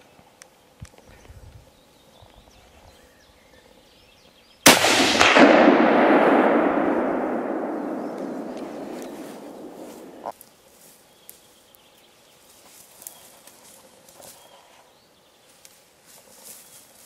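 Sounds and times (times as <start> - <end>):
rifle shot echo: 4.6 - 10.3.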